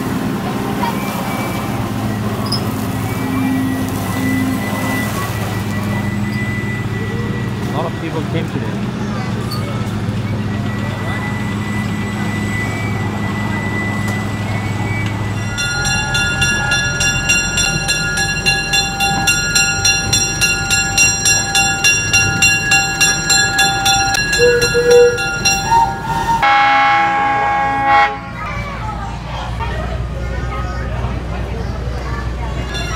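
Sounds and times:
low engine hum: 0.0 - 26.4
train bell ringing: 0.2 - 28.5, 32.4 - 32.9
train whistle toot: 1.0 - 7.6, 23.3 - 28.4.

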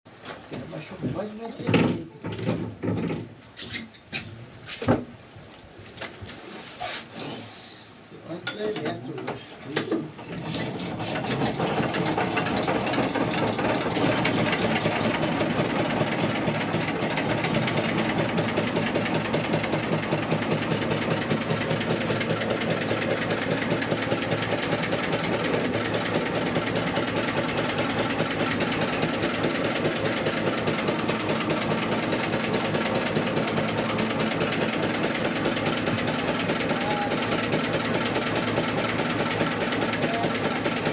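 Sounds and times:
small boat engine running: 10.9 - 40.9.

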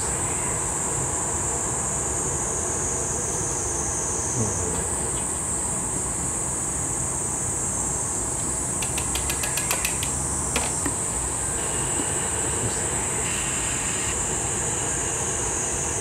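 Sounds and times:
equipment high hiss: 8.3 - 16.0.

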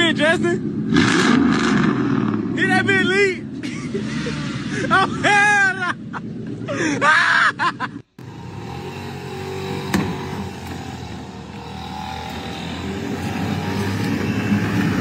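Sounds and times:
street noise: 0.0 - 15.0
motor vehicle approaching: 8.2 - 15.0.

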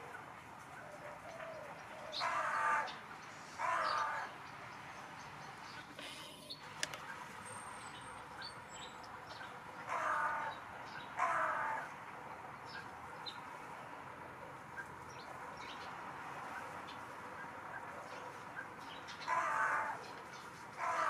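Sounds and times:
crow cawing: 2.1 - 3.0, 3.6 - 4.4, 9.9 - 10.6, 11.2 - 11.9, 19.2 - 20.0, 20.8 - 21.0.

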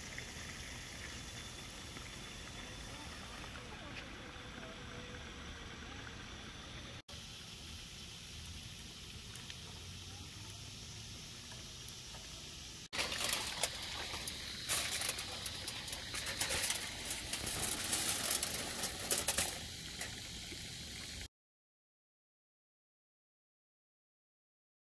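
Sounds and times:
oil crackling and popping: 0.0 - 4.7, 7.1 - 21.3
food sizzling in hot oil: 0.0 - 21.3.

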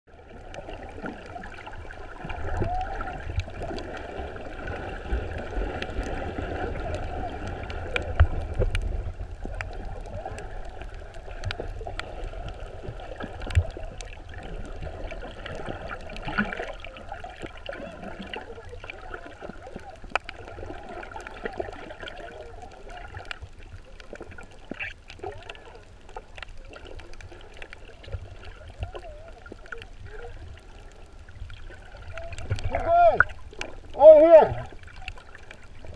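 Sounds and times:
muffled underwater sloshing and gurgling: 0.1 - 35.9.

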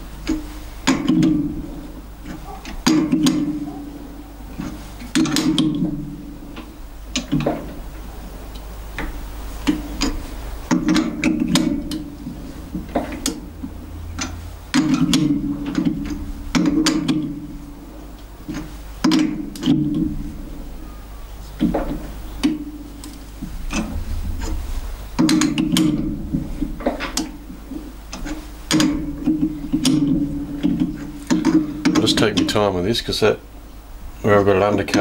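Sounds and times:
die grinding and creaking: 9.0 - 20.8, 21.4 - 33.0.

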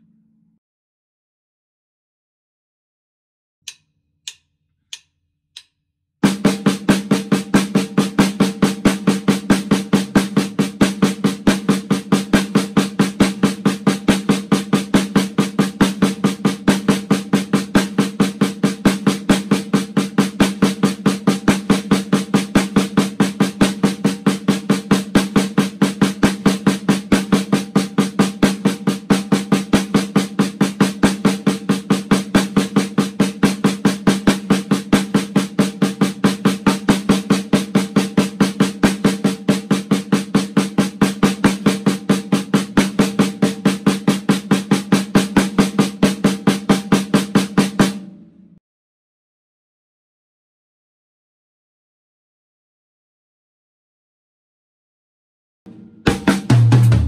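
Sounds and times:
snare drum roll: 6.2 - 48.2, 55.7 - 57.0.

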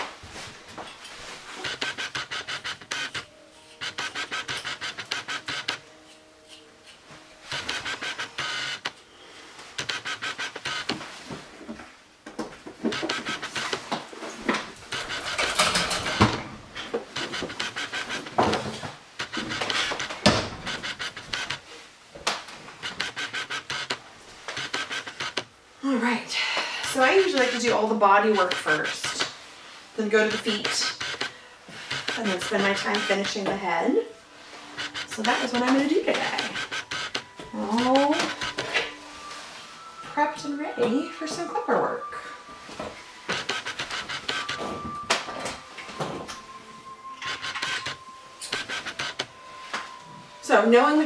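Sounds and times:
camera lens motor whirring: 1.6 - 5.8, 7.5 - 8.9, 9.8 - 11.0, 12.9 - 13.8, 17.2 - 18.6, 19.2 - 21.6, 22.8 - 25.5, 26.8 - 27.8, 28.4 - 29.3, 30.2 - 33.5, 34.7 - 38.9, 43.3 - 44.6, 47.2 - 49.3.

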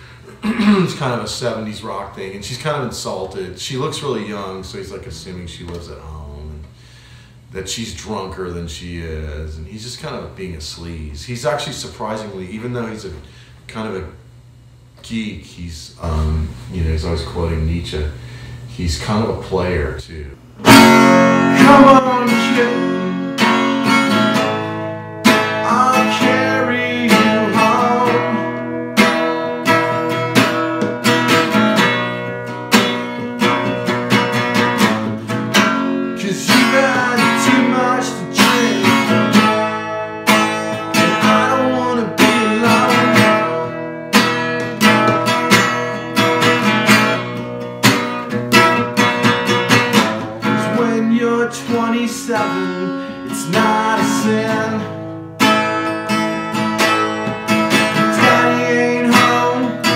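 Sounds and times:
acoustic guitar strumming: 0.0 - 5.0, 20.6 - 59.9
man singing: 20.9 - 23.5, 25.3 - 28.6, 36.1 - 39.6, 40.9 - 43.9, 50.4 - 55.0, 57.8 - 59.9.

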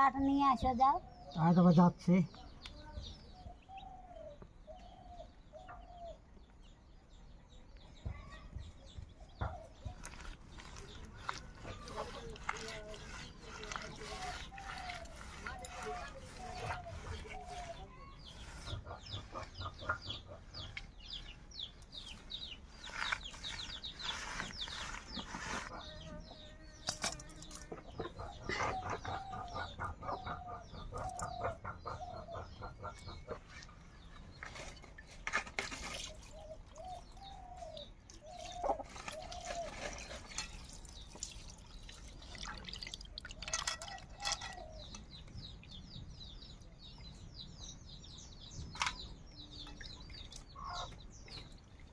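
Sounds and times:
hen clucking: 9.3 - 26.6, 27.6 - 34.1, 38.3 - 40.2, 49.6 - 51.1
fish being scrubbed in water: 9.8 - 19.6, 22.6 - 25.9.

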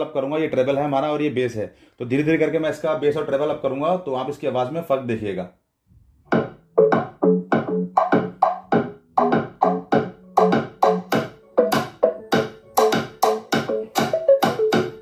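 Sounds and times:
electronic dance music: 6.4 - 15.0.

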